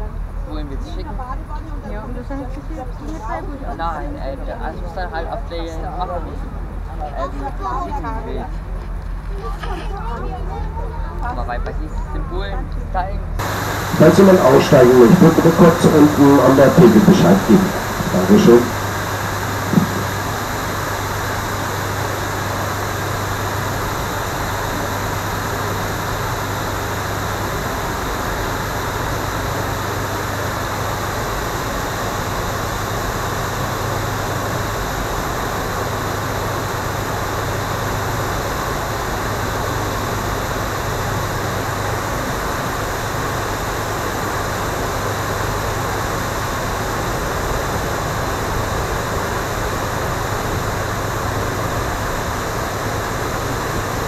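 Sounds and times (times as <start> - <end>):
boat engine humming: 13.2 - 31.7.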